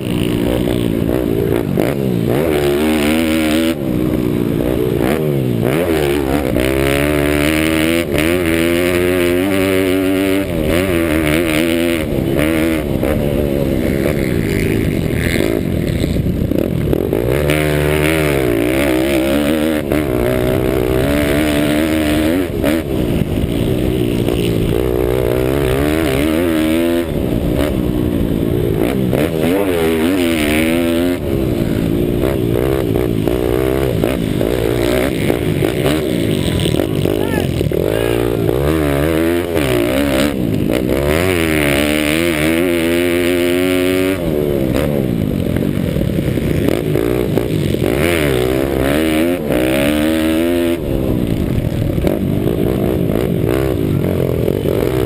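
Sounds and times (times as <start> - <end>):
motorbike engine revving: 0.0 - 55.0.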